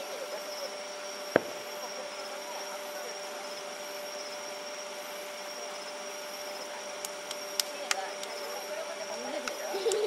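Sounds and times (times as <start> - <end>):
distant firework boom: 1.3 - 1.7.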